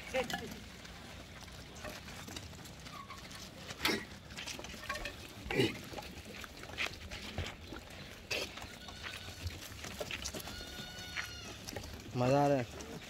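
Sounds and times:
goats scuffling: 0:00.0 - 0:13.0
goat calls: 0:08.3 - 0:11.9.

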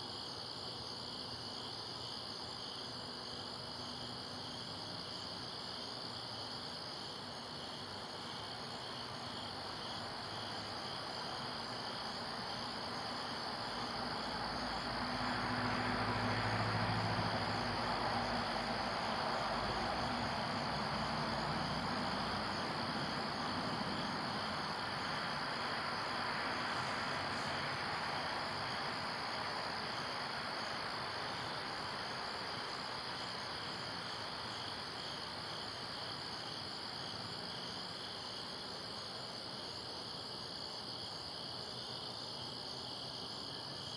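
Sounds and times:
crickets chirping: 0:00.0 - 0:43.9.

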